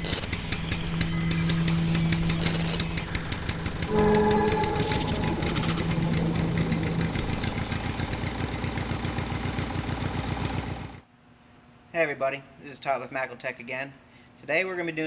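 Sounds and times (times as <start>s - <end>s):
low hum: 0.0s - 10.2s
engine running: 0.0s - 11.0s
short high tone: 0.4s - 9.1s.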